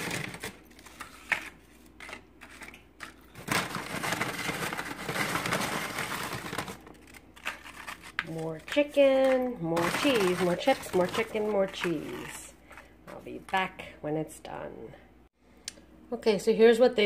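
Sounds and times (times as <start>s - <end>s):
tortilla chips crunching: 2.4s - 9.2s.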